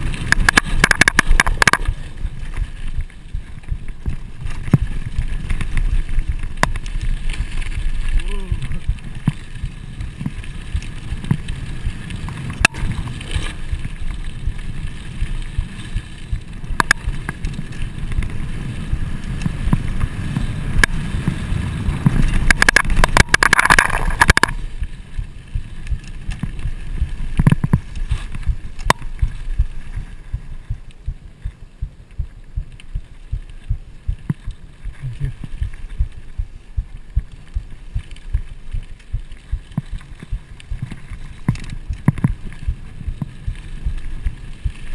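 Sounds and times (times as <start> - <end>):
bike rattling and clanking: 0.0 - 30.6
bike tyre rumble on dirt: 0.0 - 44.9
gritty hiss: 0.0 - 44.9.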